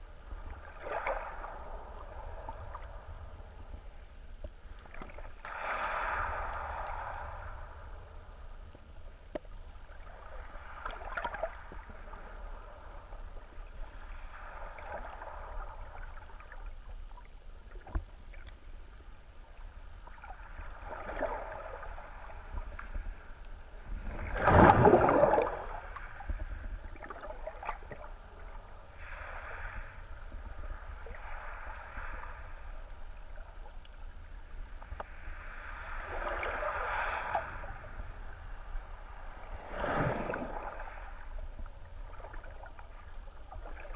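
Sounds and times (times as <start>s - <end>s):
low underwater rumble: 0.0s - 43.9s
underwater water swishing: 0.0s - 43.9s
faint clicks: 8.1s - 9.8s, 34.8s - 35.2s
loud water whoosh: 24.2s - 25.8s.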